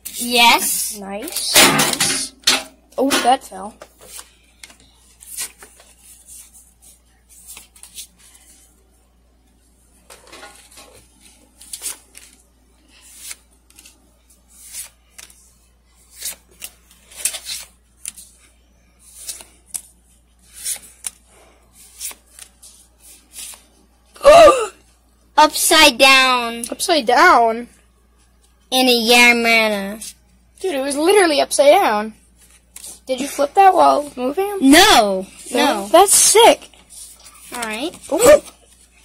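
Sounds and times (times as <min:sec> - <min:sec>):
trading cards flipping: 0:03.8 - 0:08.7, 0:10.1 - 0:15.4, 0:16.0 - 0:23.7, 0:36.7 - 0:39.0.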